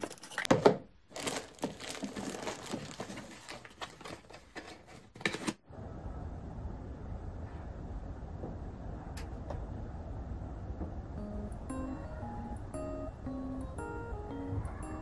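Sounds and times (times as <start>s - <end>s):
plastic film crinkling: 1.1s - 5.2s
low background rumble: 5.7s - 15.0s.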